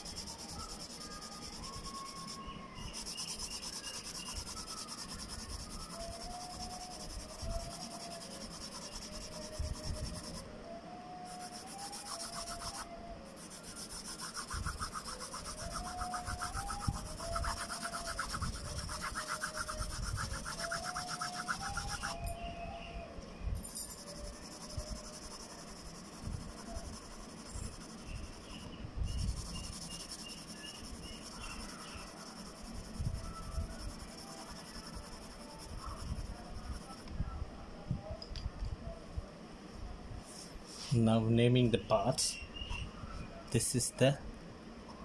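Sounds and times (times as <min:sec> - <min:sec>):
paper rubbing on drawing paper: 0:00.0 - 0:10.4, 0:11.2 - 0:22.2, 0:24.0 - 0:37.0.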